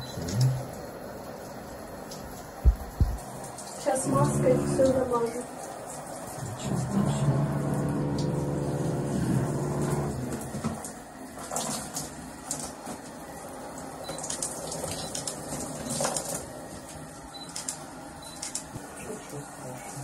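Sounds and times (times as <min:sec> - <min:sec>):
running water in a shower: 0:00.0 - 0:20.0
steady low hum: 0:02.5 - 0:05.1, 0:06.2 - 0:10.6.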